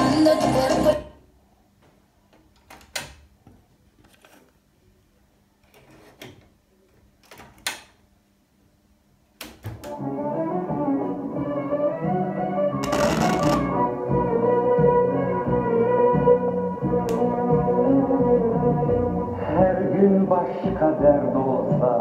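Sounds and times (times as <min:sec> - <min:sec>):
music from speakers: 0:00.0 - 0:01.1.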